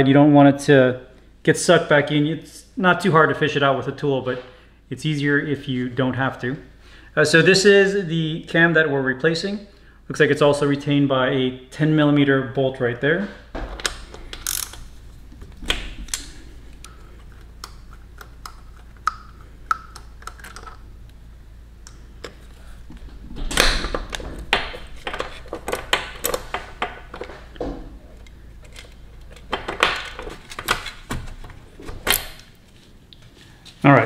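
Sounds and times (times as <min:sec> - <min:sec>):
ratcheting wrench clicking: 0:14.2 - 0:14.9.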